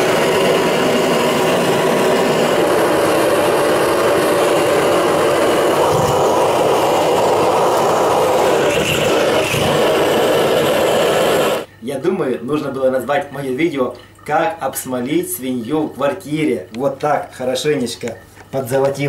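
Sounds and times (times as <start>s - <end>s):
gas torch flame roaring: 0.0s - 11.7s.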